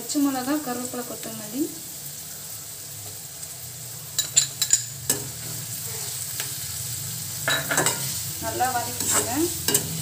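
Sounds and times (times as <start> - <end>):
onions sizzling in oil: 0.0 - 10.0
metal spatula stirring: 8.8 - 10.0.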